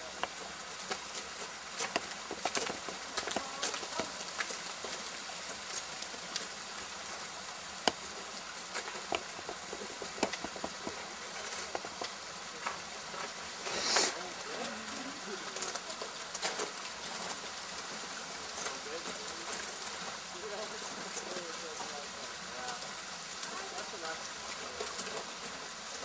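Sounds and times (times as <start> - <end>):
steady hiss: 0.0 - 26.0
ice axes striking ice: 8.9 - 12.8.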